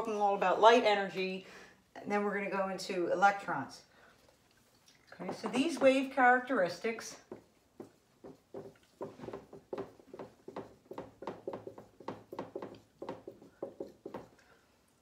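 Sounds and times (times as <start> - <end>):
pen tapping and scratching: 5.2 - 6.1, 7.2 - 14.4.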